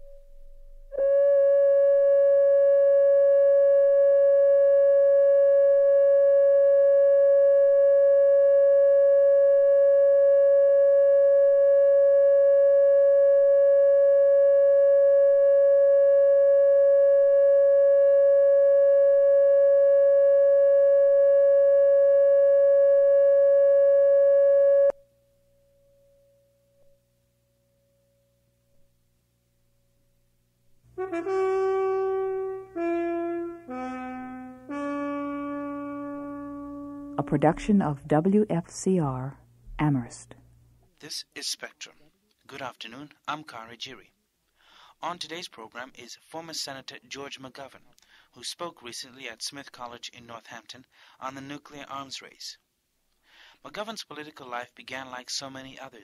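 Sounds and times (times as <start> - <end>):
electronic test tone: 0.0 - 25.0.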